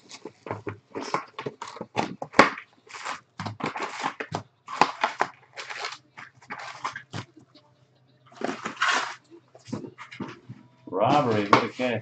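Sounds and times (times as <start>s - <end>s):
cardboard boxes being handled: 0.0s - 7.4s, 8.4s - 12.0s
plastic shrink-wrap crinkling: 0.0s - 7.4s, 8.3s - 11.9s.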